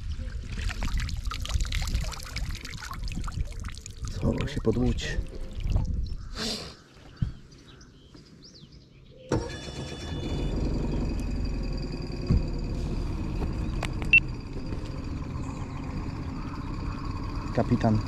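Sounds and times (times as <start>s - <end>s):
boat motor running: 9.8s - 18.0s.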